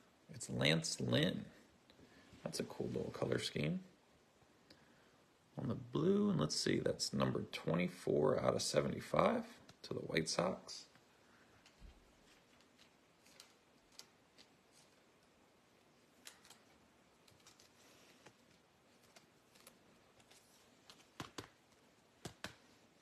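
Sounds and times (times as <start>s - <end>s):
trading cards being shuffled: 11.6s - 15.1s, 16.1s - 22.7s.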